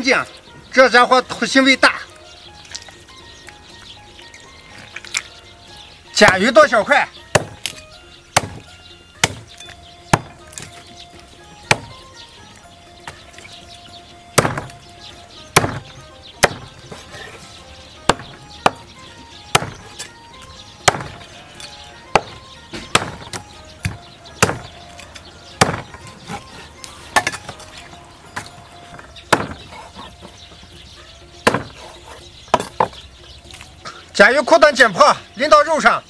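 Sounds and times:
faint background music: 0.0s - 36.0s
cleaver chopping on wooden block: 7.3s - 10.8s, 11.6s - 12.1s, 14.4s - 14.8s, 15.5s - 17.0s, 18.0s - 20.1s, 20.8s - 24.9s, 25.5s - 26.4s, 28.4s - 29.9s, 31.4s - 33.0s.

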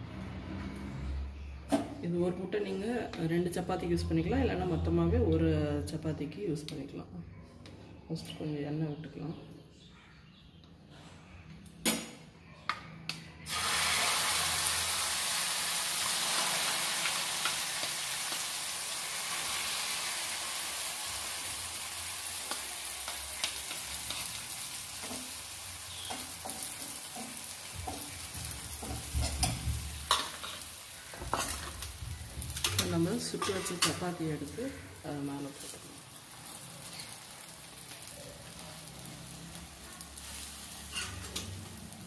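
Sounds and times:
egg sizzling on hot pan: 13.5s - 32.8s, 35.6s - 42.0s.

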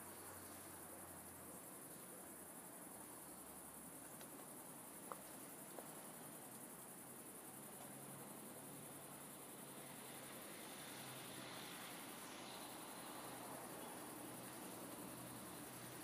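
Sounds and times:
crickets chirring: 0.0s - 16.0s
faint ticks: 4.0s - 6.7s.

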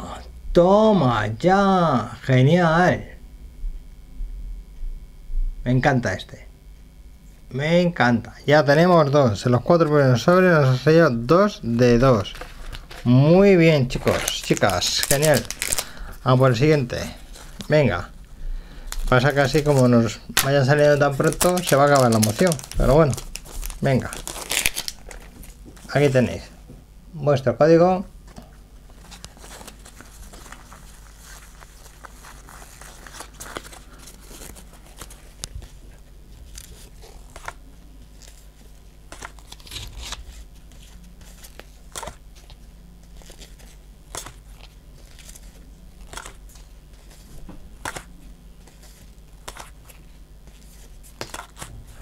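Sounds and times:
low steady hum: 0.0s - 52.0s
cards sliding and flicking: 39.1s - 51.8s.

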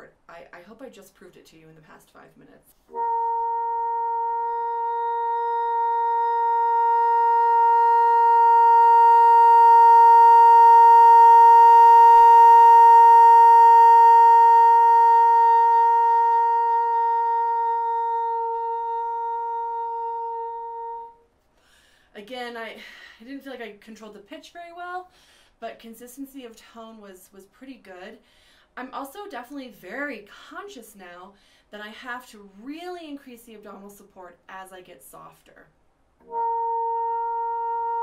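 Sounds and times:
bassoon long tone: 2.9s - 21.2s, 36.2s - 38.0s.

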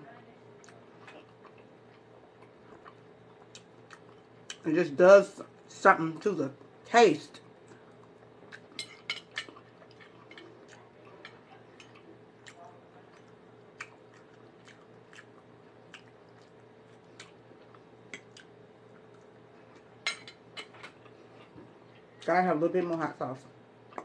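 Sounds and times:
steady low hum: 0.0s - 24.0s
person chewing: 0.6s - 4.6s, 7.6s - 20.0s.

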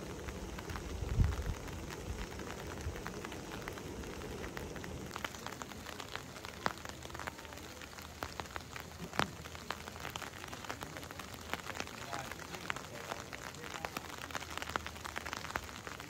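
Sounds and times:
steady rain: 0.0s - 16.0s.

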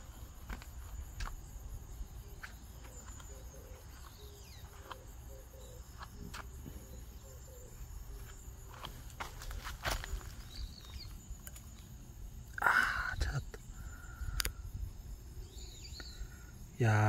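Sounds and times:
insects chirping: 0.0s - 17.0s
footsteps on gravelly dirt: 8.2s - 11.2s.

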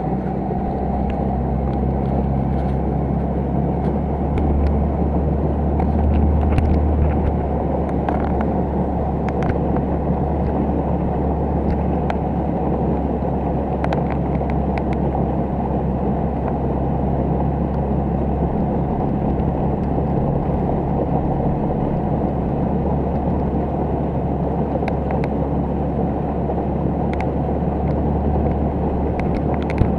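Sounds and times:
motorboat engine running: 0.0s - 29.9s
water and wind rushing: 4.0s - 29.9s.

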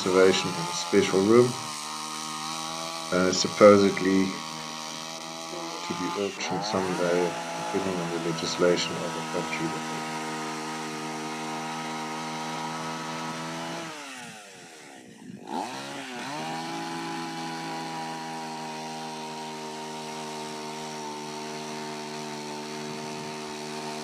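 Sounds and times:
small motor running: 0.0s - 24.0s.

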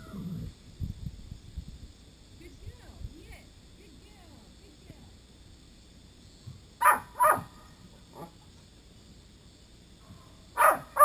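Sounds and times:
dog barking: 6.8s - 8.3s, 10.6s - 11.0s.

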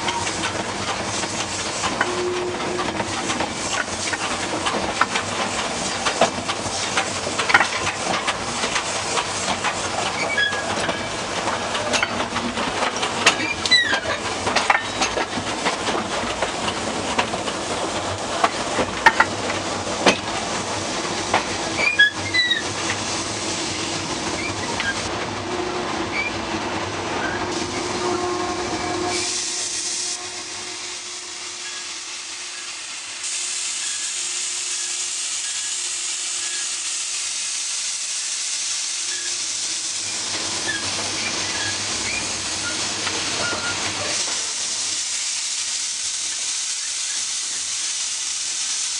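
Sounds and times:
steam hissing: 0.0s - 25.1s, 27.3s - 48.9s
train wheels clattering over rails: 0.0s - 25.4s
high wheel squeals: 43.4s - 43.8s.

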